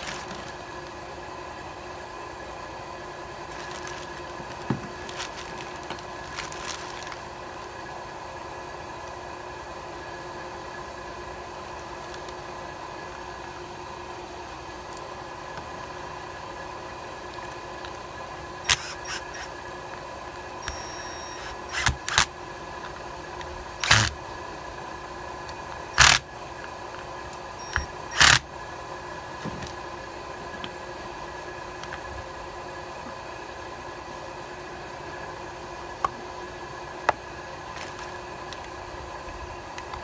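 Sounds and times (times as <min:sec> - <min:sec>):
background hum: 0:00.0 - 0:40.0
knocks and clatters of plastic parts: 0:03.5 - 0:07.2, 0:29.4 - 0:29.8.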